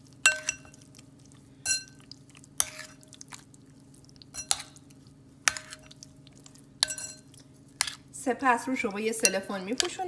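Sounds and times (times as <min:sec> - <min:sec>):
wet stirring of batter: 0:00.0 - 0:10.0
utensil clinking against bowl: 0:00.3 - 0:00.8, 0:06.8 - 0:08.0, 0:08.7 - 0:10.0.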